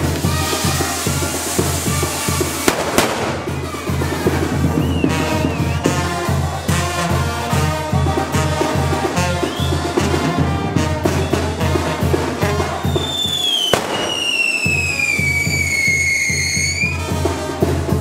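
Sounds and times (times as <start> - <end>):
whistling firework: 0.0 - 6.0, 9.4 - 10.0, 12.7 - 17.2
firework crack: 0.0 - 6.3, 11.2 - 17.2
band music with bass beat: 0.0 - 18.0.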